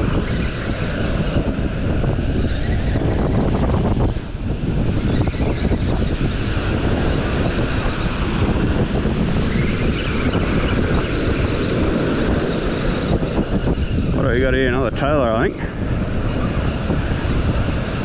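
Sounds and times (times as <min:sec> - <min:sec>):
breaking surf: 0:00.0 - 0:18.0
wind rumbling on microphone: 0:00.0 - 0:18.0.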